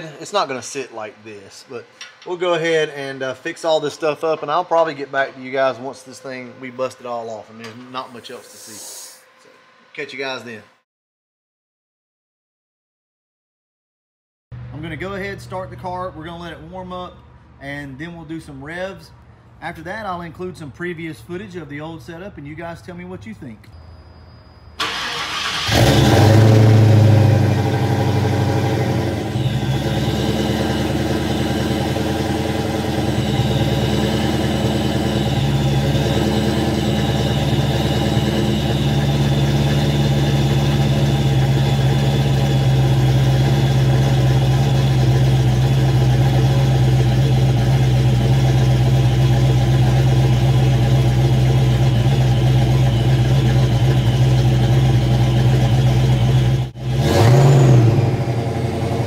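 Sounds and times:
car engine starting and idling: 24.8s - 59.0s.

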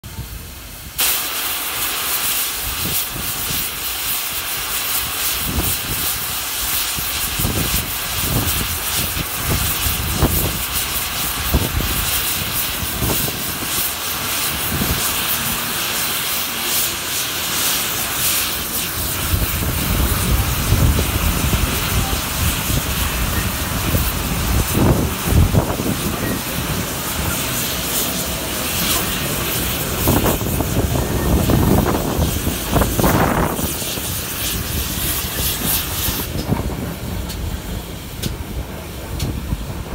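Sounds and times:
steam hiss: 0.0s - 39.9s
steam locomotive exhaust beats: 0.0s - 39.9s
wind noise on microphone: 5.4s - 13.8s, 14.4s - 15.2s, 19.0s - 27.2s, 29.6s - 39.9s
low rumble of coaches rolling: 18.8s - 39.9s.

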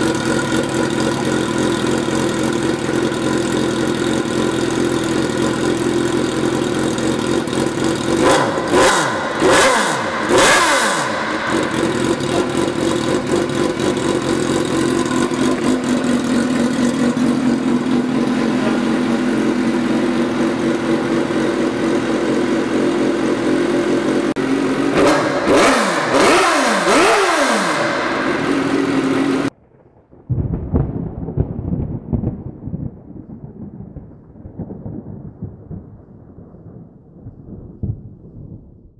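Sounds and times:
motorcycle engine idling: 0.0s - 29.5s
motorcycle throttle blips: 0.0s - 29.5s
low rumbling noise: 0.0s - 38.9s.

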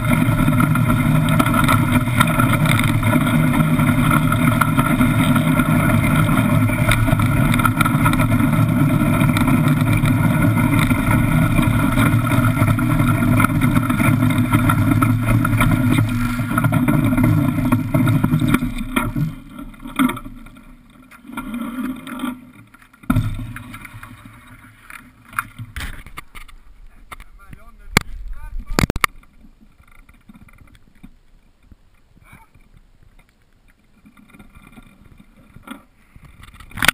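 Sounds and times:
iceboat runners rumbling over ice: 0.0s - 26.2s.

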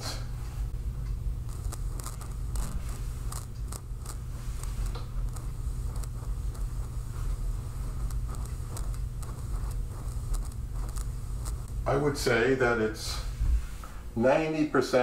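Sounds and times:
low hum: 0.0s - 14.7s
volume knob crackles and clicks: 0.8s - 11.8s.

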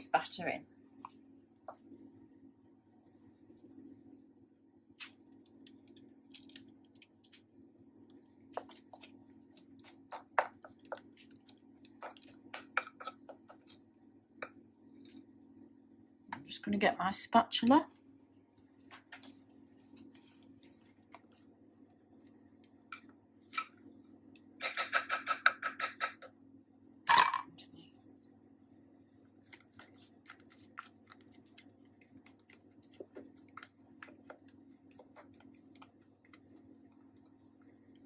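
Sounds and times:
spatula scraping a bowl: 24.6s - 26.3s.

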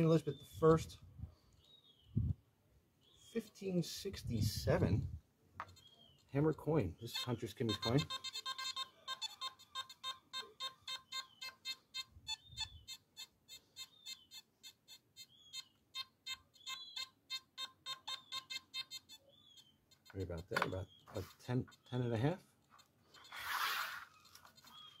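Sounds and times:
metal detector beeps: 5.7s - 25.0s.

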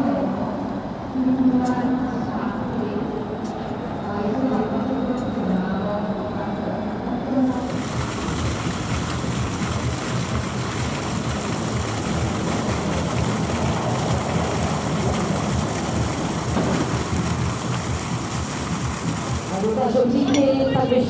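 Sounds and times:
fountain water splashing into basin: 7.5s - 20.1s.

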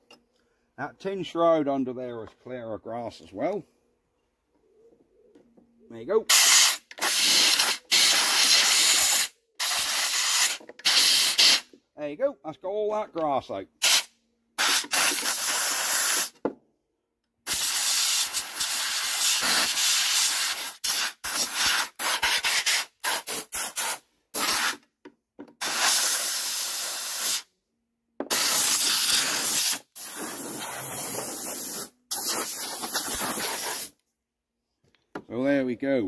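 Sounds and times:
air blow gun hissing: 6.3s - 11.7s, 13.8s - 16.3s, 17.5s - 24.8s, 25.6s - 27.5s, 28.3s - 34.0s.

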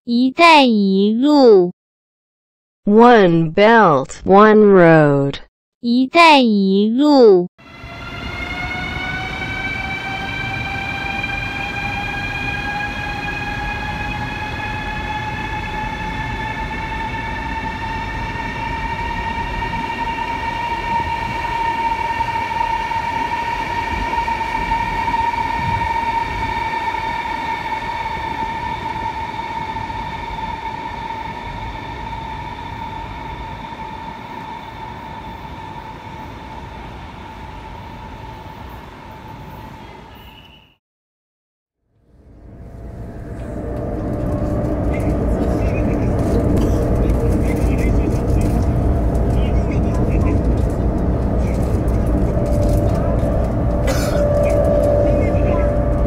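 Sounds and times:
electric train motor whine: 7.6s - 39.8s, 42.2s - 56.0s
low rumble: 42.2s - 56.0s.

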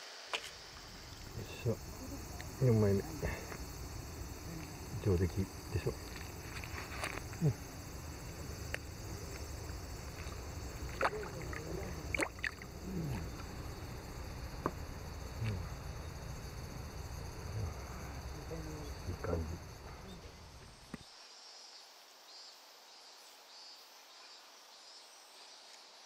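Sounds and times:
water sloshing and splashing: 8.3s - 13.8s.

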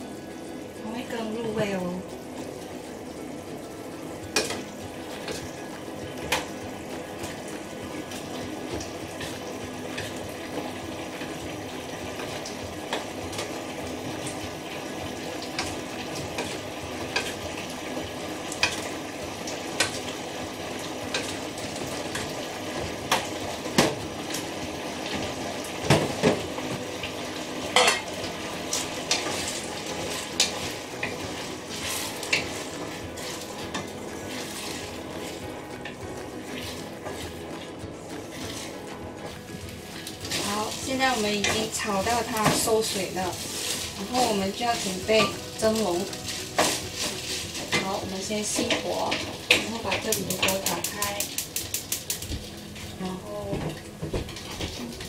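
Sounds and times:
rice sizzling in a frying pan: 0.0s - 55.0s
utensils clinking against pan: 27.7s - 28.1s, 40.3s - 52.3s.

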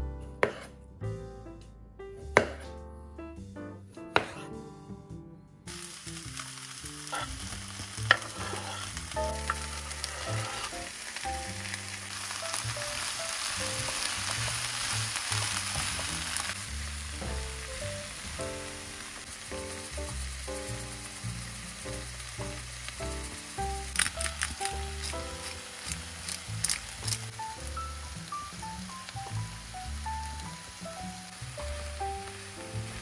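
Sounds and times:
knife cutting on wooden board: 0.4s - 0.8s, 2.4s - 2.8s, 4.1s - 4.5s, 9.5s - 10.7s
vegetables sizzling in oil: 5.7s - 33.0s.

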